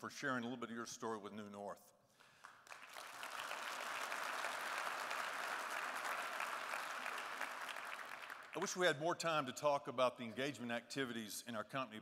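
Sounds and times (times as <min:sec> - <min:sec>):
audience applauding: 0:02.4 - 0:08.8.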